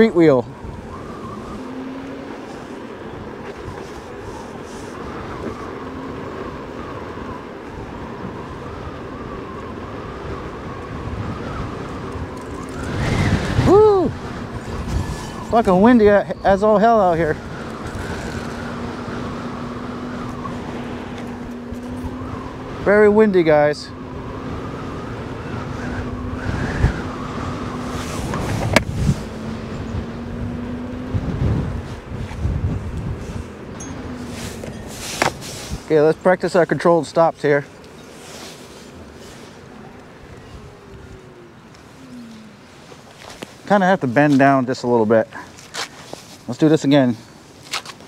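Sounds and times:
wind on microphone: 0.0 - 36.4
electric unicycle rolling: 0.0 - 46.3.

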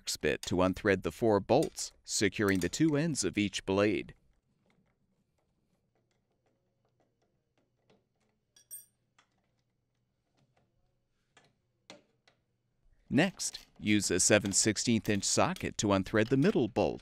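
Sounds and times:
tools ticking and clicking on bolts: 1.5 - 3.3, 13.4 - 17.0.

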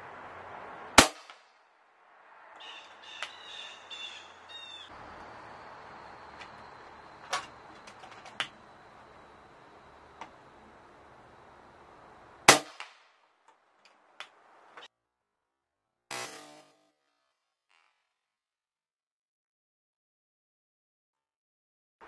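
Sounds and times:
air rifle shot: 1.0 - 1.5, 12.5 - 13.1
small sharp cracks: 1.0 - 1.6, 12.5 - 14.9
harsh bird calls: 2.1 - 12.4.

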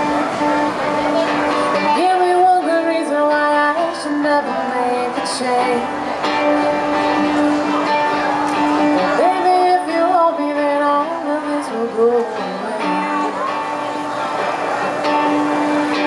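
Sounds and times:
acoustic guitar: 0.0 - 16.0
woman singing: 1.3 - 6.0, 8.9 - 13.5.

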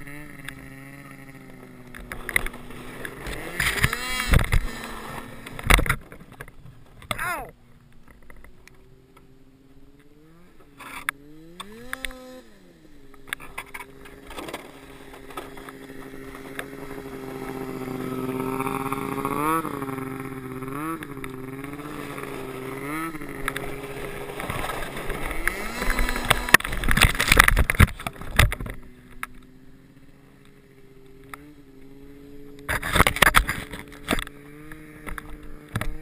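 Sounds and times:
tube scraping over snow: 0.0 - 5.6, 13.8 - 28.4
snowmobile engine revving: 0.0 - 7.6, 8.4 - 36.0.

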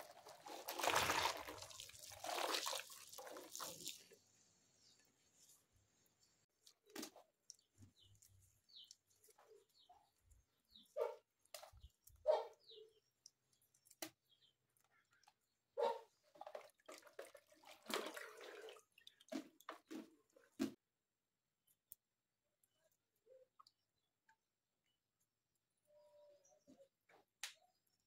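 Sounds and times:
water splashing in basin: 0.0 - 4.1, 16.2 - 20.8.

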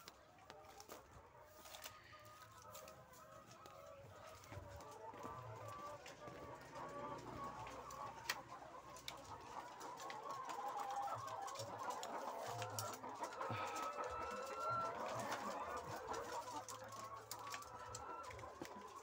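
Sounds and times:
hens clucking: 0.0 - 19.0.

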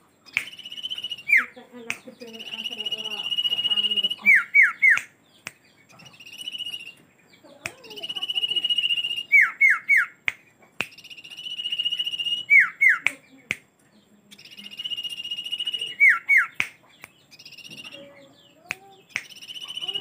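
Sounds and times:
bird singing whistled phrases: 0.2 - 7.0, 7.7 - 10.2, 10.8 - 13.4, 14.3 - 20.0
sharp clicks: 0.3 - 1.2, 10.2 - 12.3, 18.7 - 20.0.

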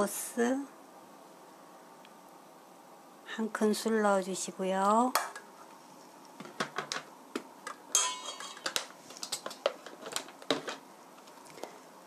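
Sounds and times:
spoon clinking in metal bowl: 7.9 - 8.8.

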